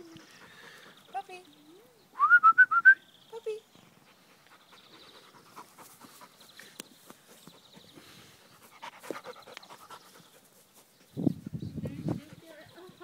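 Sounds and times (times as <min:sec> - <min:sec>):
dog panting: 0:00.0 - 0:01.6, 0:03.9 - 0:11.1, 0:11.9 - 0:13.0.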